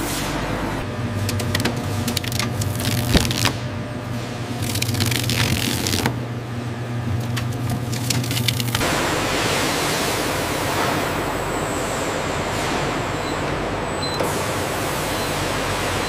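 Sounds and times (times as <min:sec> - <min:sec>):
fleshing machine humming: 0:00.0 - 0:16.0
wet squishing and crackling: 0:04.6 - 0:06.1.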